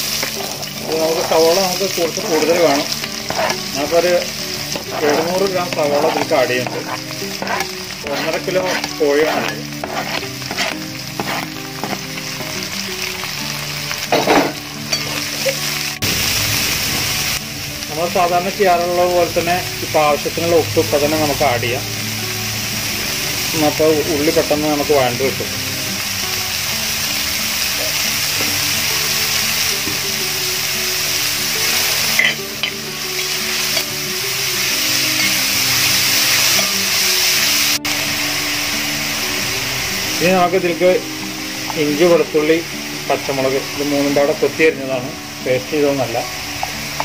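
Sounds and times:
onions sizzling in oil: 0:00.0 - 0:47.0
metal ladle scraping pot: 0:02.1 - 0:12.5, 0:14.1 - 0:15.4.

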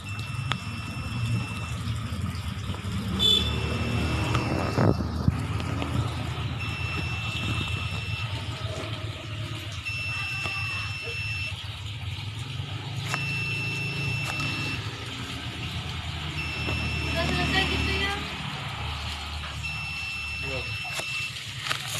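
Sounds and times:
high electronic warning beep: 0:00.0 - 0:02.0, 0:03.2 - 0:05.2, 0:06.4 - 0:08.8, 0:09.8 - 0:11.7, 0:13.0 - 0:15.0, 0:16.3 - 0:18.3, 0:19.5 - 0:21.4
vehicle engine rumbling: 0:00.0 - 0:21.9.

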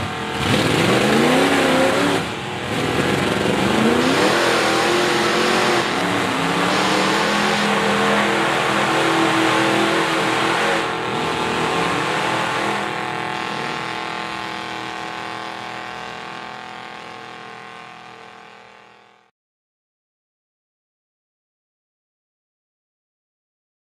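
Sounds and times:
tires churning through mud: 0:00.0 - 0:19.2
truck engine revving hard: 0:00.0 - 0:19.3.

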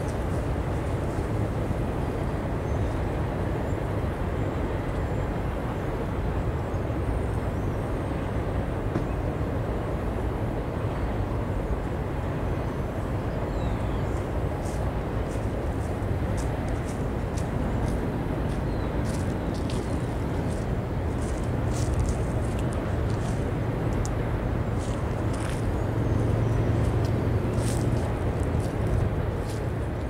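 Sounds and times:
distant freight train rumbling: 0:08.3 - 0:30.0.

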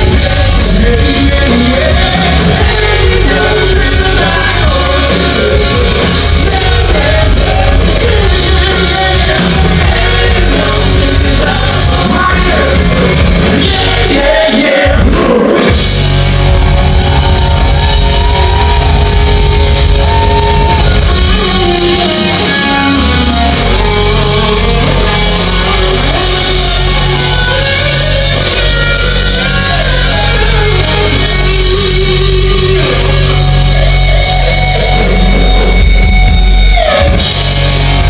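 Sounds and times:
person singing: 0:00.0 - 0:15.8
bass guitar: 0:00.0 - 0:38.0
distorted electric guitar: 0:00.0 - 0:38.0
drum kit: 0:00.0 - 0:38.0.

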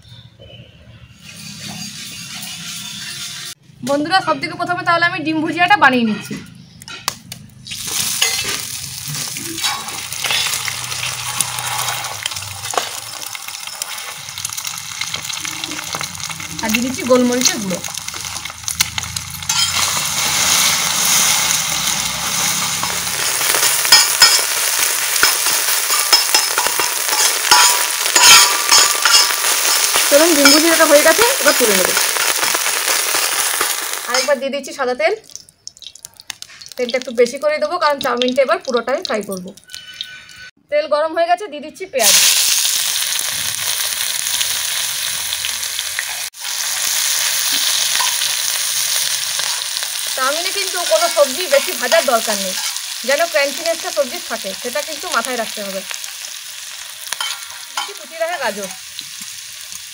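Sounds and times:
egg sizzling in hot oil: 0:07.7 - 0:40.5, 0:42.0 - 0:59.9
metal spatula stirring: 0:07.9 - 0:16.4, 0:17.8 - 0:31.1, 0:50.9 - 0:53.0, 0:57.1 - 0:58.0
metal spatula scraping and clicking: 0:09.6 - 0:14.0, 0:25.2 - 0:30.6, 0:52.6 - 0:52.9.

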